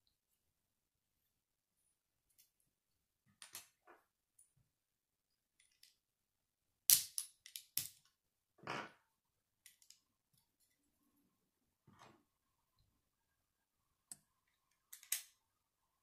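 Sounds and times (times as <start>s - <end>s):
plastic bricks clicking together: 14.7s - 15.4s.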